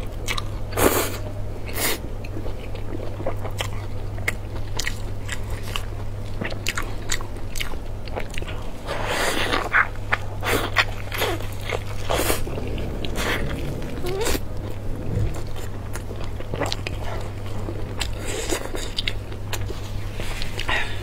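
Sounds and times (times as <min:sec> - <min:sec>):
steady low hum: 0:00.0 - 0:21.0
wet chewing of meat: 0:01.7 - 0:21.0
smacking and sucking: 0:09.2 - 0:17.0.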